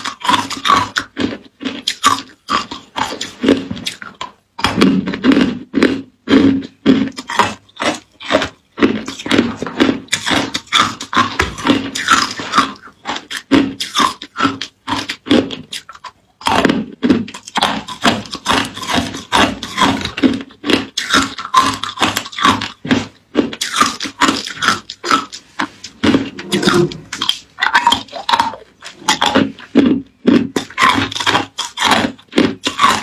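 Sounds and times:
crunching ice in mouth: 0:00.0 - 0:33.0.

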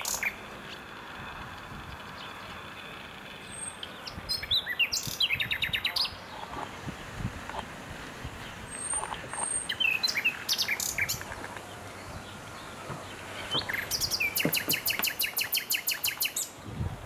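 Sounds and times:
bird trill: 0:00.0 - 0:00.9, 0:01.9 - 0:06.3, 0:08.5 - 0:16.6
songbird chirps and calls: 0:00.0 - 0:16.7.

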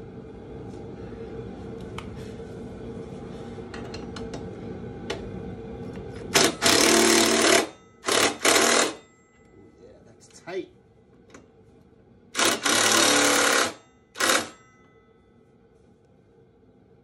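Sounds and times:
cordless power driver running: 0:06.4 - 0:09.0, 0:12.4 - 0:14.5.

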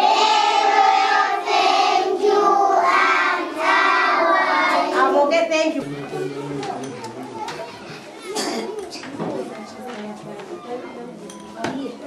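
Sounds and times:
children singing in unison: 0:00.0 - 0:05.2.

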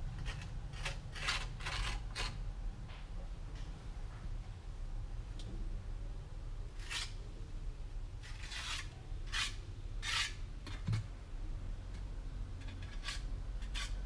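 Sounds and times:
trowel scraping wet cement: 0:00.2 - 0:02.4, 0:08.2 - 0:10.8.

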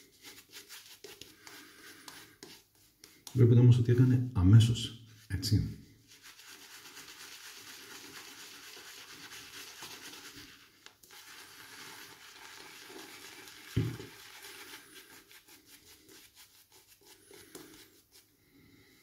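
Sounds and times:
shaving brush scrubbing lather: 0:00.0 - 0:03.4, 0:06.0 - 0:18.3
low thump: 0:13.8 - 0:14.0.

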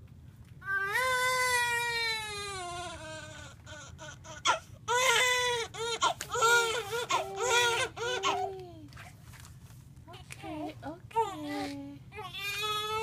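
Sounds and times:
newborn baby crying: 0:00.7 - 0:08.6, 0:12.1 - 0:13.0.

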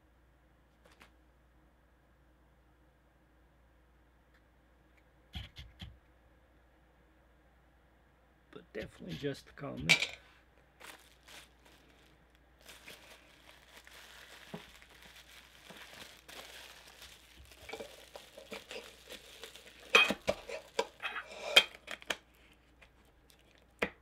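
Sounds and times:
plastic packaging crinkling: 0:10.6 - 0:23.8
tin can clicking and clattering: 0:19.8 - 0:21.0.

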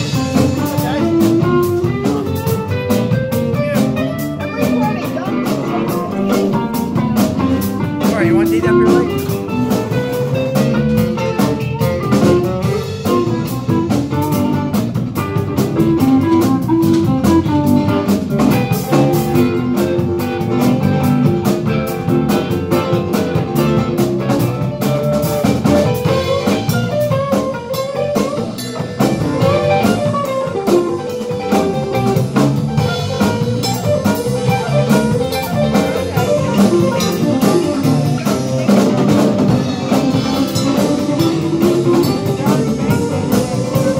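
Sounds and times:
drum kit: 0:00.0 - 0:43.9
electric guitar: 0:00.0 - 0:43.9
strummed acoustic guitar: 0:03.5 - 0:09.1.

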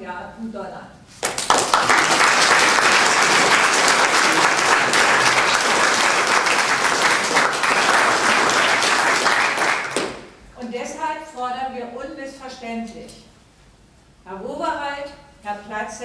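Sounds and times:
audience applauding: 0:01.2 - 0:10.3.

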